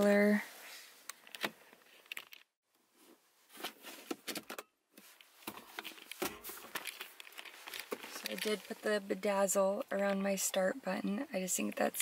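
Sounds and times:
small objects clicking and rattling: 0:05.8 - 0:08.7.

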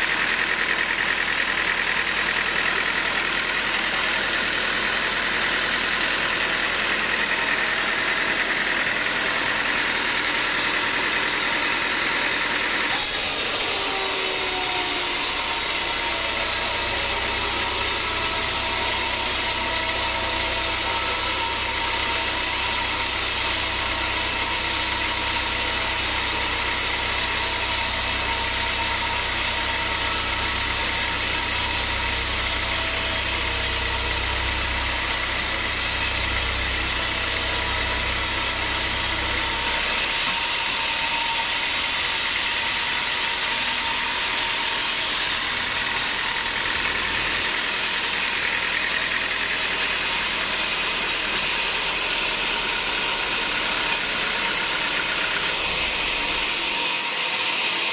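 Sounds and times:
band sawmill whirring: 0:00.0 - 0:57.9.

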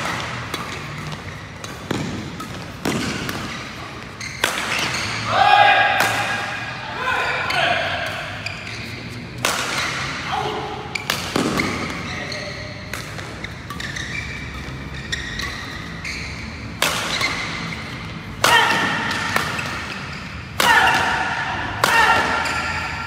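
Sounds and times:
racket hitting shuttlecock: 0:00.0 - 0:05.2, 0:05.8 - 0:06.7, 0:09.3 - 0:10.2, 0:11.0 - 0:12.1, 0:12.8 - 0:23.0
voices shouting: 0:05.1 - 0:08.5, 0:18.4 - 0:19.2.

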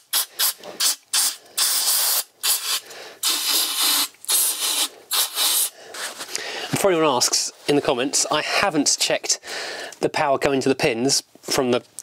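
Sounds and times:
aerosol can spraying: 0:00.0 - 0:06.2.

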